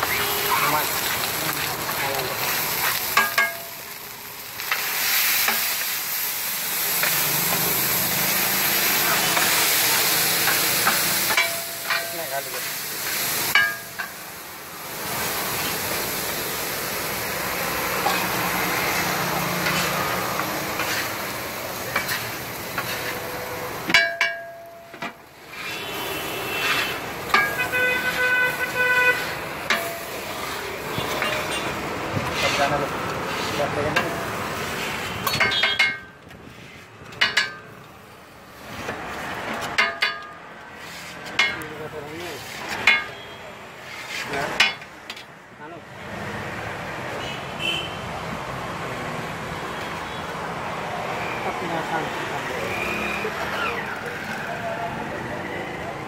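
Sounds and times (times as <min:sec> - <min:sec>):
eggs sizzling on a griddle: 0:00.0 - 0:24.0, 0:25.2 - 0:36.0
metal spatula scraping griddle: 0:18.0 - 0:21.3, 0:21.9 - 0:23.4, 0:25.5 - 0:35.9, 0:40.8 - 0:41.6, 0:42.4 - 0:44.8
metal on metal clacks: 0:37.1 - 0:37.7, 0:42.7 - 0:43.2.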